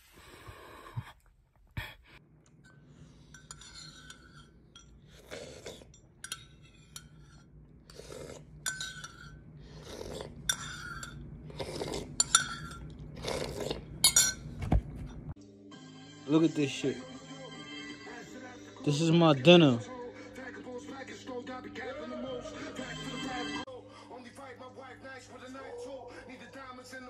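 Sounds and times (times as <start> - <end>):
spoon clinking against dish: 2.7 - 7.5, 8.6 - 9.5, 10.4 - 11.3, 12.2 - 13.0, 14.0 - 14.5.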